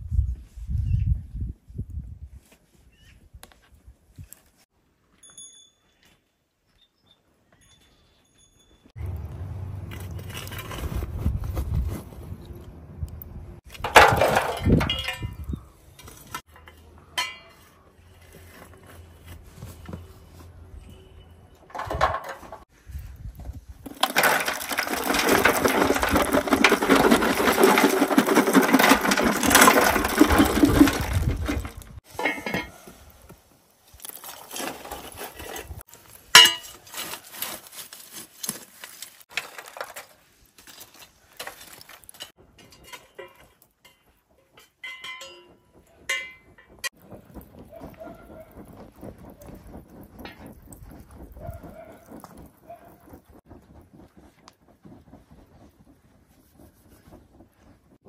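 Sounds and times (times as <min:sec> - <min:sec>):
charcoal clattering into metal tray: 0:13.7 - 0:17.6, 0:23.9 - 0:32.8, 0:36.3 - 0:46.7.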